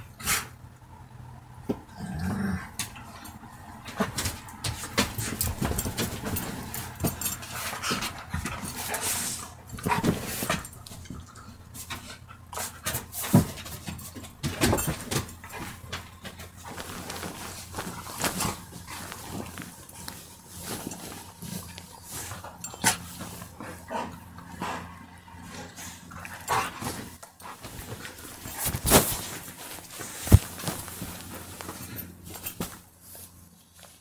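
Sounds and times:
dogs growling and snapping: 1.8s - 32.7s
dogs panting: 2.9s - 28.6s.

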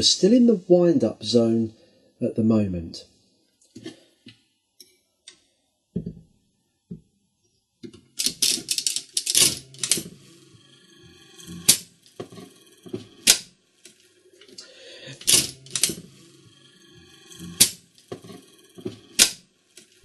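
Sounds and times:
slot machine mechanism clicking: 8.2s - 10.2s, 11.4s - 12.2s, 13.1s - 14.0s, 15.2s - 16.1s, 17.3s - 18.1s, 19.0s - 20.0s.

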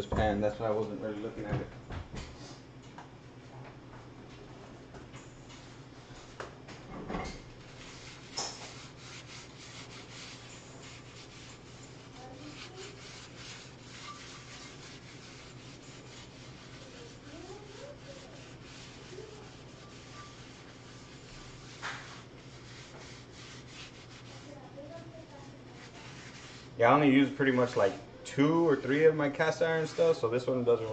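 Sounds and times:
steady low hum: 0.0s - 30.9s
scraping inside a skillet: 7.6s - 24.6s, 25.2s - 26.8s.

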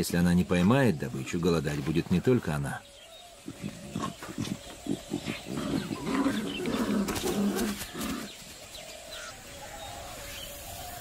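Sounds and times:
tigers growling: 2.4s - 10.4s.

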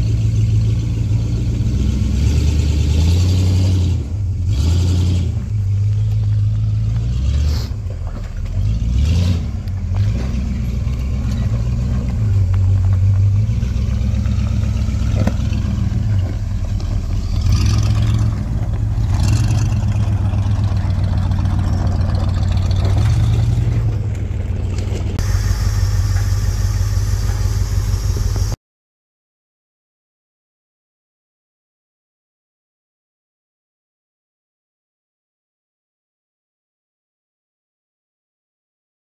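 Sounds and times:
off-road vehicle engine revving: 0.0s - 28.6s.

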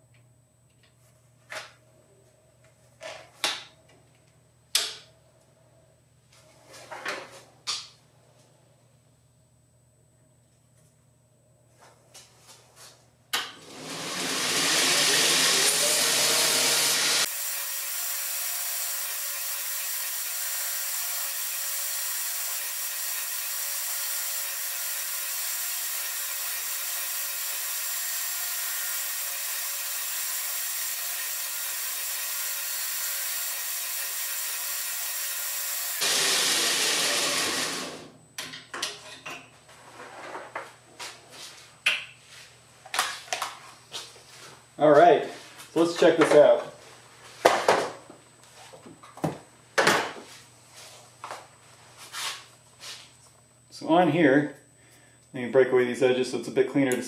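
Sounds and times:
belt grinder grinding wood: 13.6s - 38.1s
grinder motor whine: 13.6s - 38.2s.

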